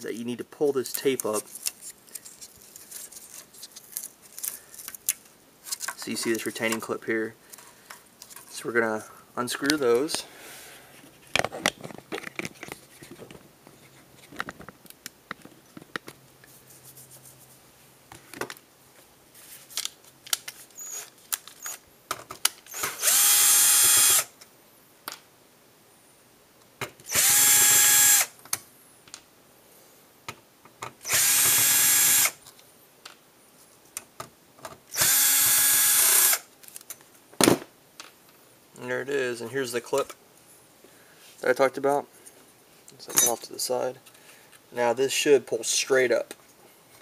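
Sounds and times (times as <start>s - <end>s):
handling small parts: 0.8s - 8.7s, 10.9s - 16.6s, 19.3s - 23.2s, 36.6s - 38.3s
cordless drill running: 22.7s - 24.3s, 27.1s - 28.3s, 31.0s - 32.4s, 34.9s - 36.4s.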